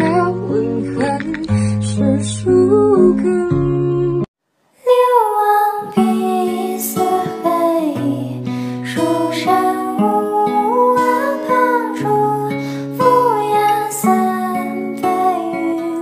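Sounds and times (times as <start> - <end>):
music: 0.0 - 4.3, 5.9 - 16.0
background music with plucked strings: 6.0 - 16.0.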